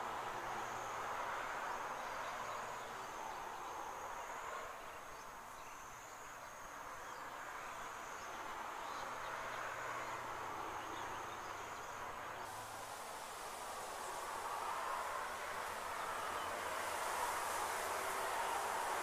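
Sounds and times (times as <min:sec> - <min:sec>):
steady background hiss: 0:00.0 - 0:19.0.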